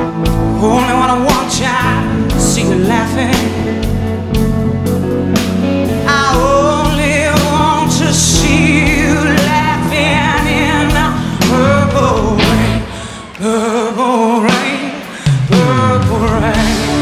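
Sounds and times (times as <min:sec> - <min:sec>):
electric guitar: 0:00.0 - 0:17.0
rock band playing ballad: 0:00.0 - 0:17.0
woman singing: 0:00.4 - 0:04.1, 0:06.0 - 0:17.0
slow drum beat: 0:06.4 - 0:13.1, 0:14.5 - 0:17.0.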